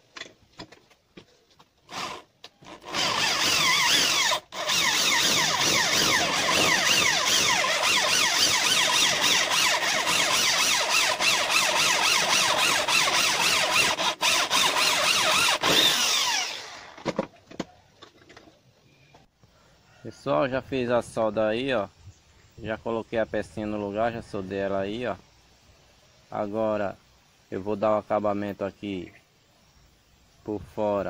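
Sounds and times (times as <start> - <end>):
electric drill boring into metal: 1.9 - 17.0.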